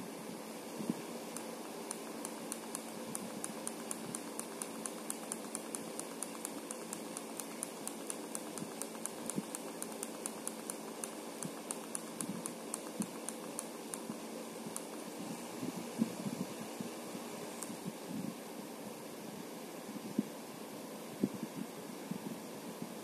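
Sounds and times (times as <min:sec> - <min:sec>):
small fan humming: 0:00.0 - 0:20.3
light even ticking: 0:01.4 - 0:15.1.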